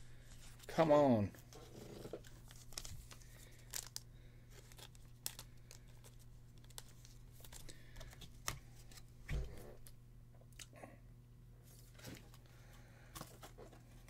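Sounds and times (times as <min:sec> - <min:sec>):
steady low hum: 0:00.0 - 0:14.0
plastic card sleeve crinkling: 0:00.1 - 0:09.1.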